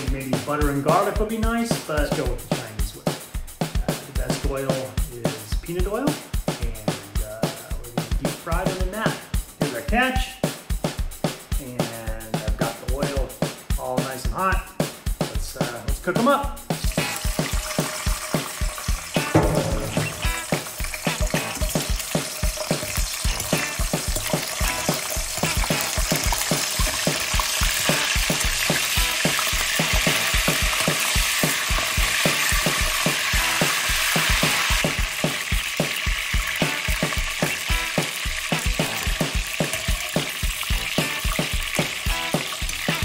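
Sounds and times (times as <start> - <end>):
deep-frying sizzle in a wok: 16.8 - 19.4, 20.0 - 43.0.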